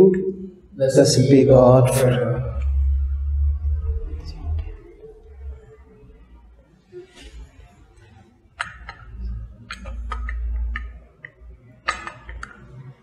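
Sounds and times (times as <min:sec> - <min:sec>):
low rumble: 0:01.5 - 0:06.4.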